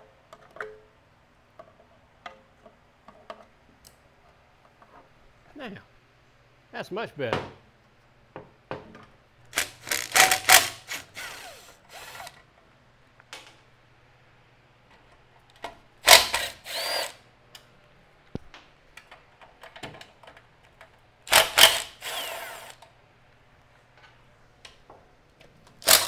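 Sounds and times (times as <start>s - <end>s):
cordless drill running: 9.6s - 12.4s, 16.1s - 17.2s, 21.3s - 22.8s.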